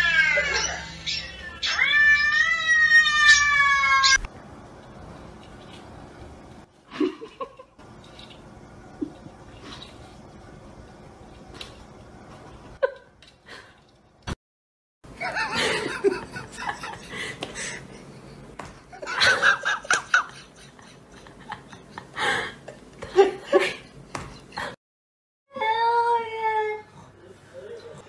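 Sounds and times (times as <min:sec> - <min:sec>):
people laughing: 0:15.2 - 0:17.8, 0:19.0 - 0:22.5.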